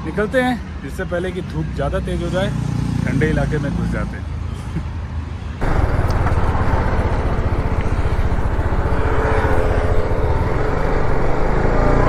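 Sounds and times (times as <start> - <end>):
road noise: 0.0 - 12.0
motorcycle engine running: 5.6 - 11.9.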